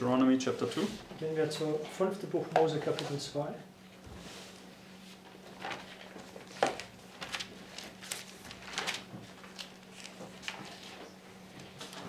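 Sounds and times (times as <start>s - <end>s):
thin pages rustling: 5.4s - 12.0s.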